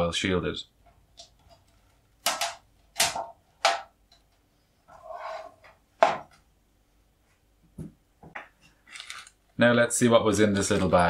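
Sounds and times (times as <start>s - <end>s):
objects knocking on tabletop: 6.0s - 6.3s.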